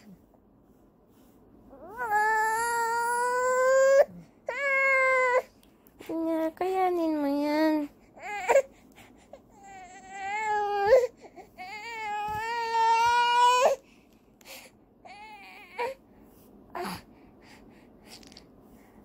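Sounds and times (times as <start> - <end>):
baby crying and whimpering: 1.7 - 5.5, 8.2 - 13.8, 14.6 - 16.0, 16.7 - 17.1.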